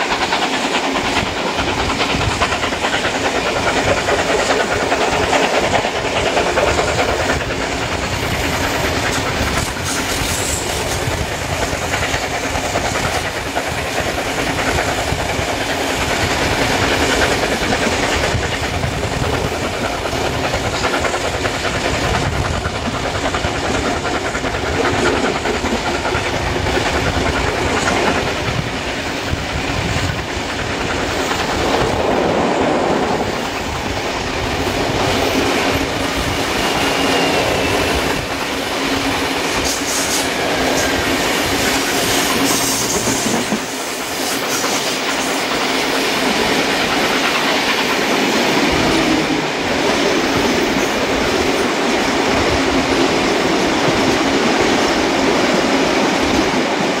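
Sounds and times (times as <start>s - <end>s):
train wheels clattering over rails: 0.0s - 57.0s
rush of passing air: 28.4s - 43.8s.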